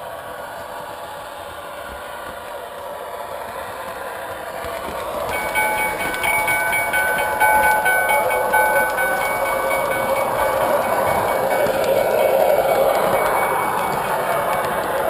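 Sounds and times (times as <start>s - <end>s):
model train rolling on track: 0.2s - 15.0s
model train signal tones: 5.3s - 15.0s.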